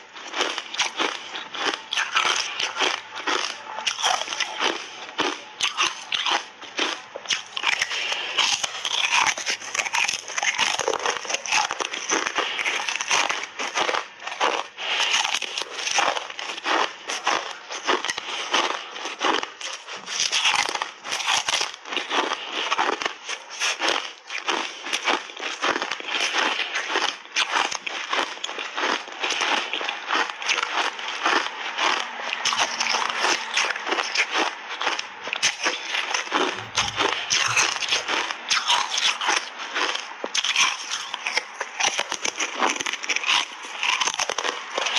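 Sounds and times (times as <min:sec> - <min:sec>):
ice being bitten and crunched: 0:00.0 - 0:44.9.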